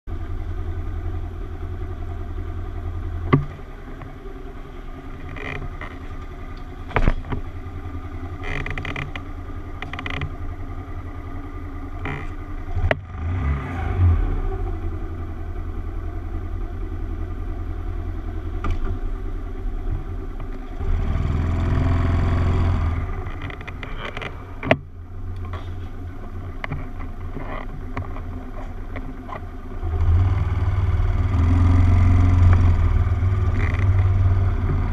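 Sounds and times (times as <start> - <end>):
small motorcycle engine running: 0.1 - 18.8, 19.5 - 24.9, 26.4 - 34.9.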